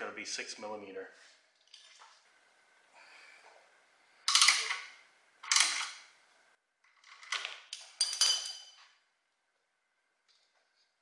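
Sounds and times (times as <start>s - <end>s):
metal tools clanking: 8.0s - 8.8s.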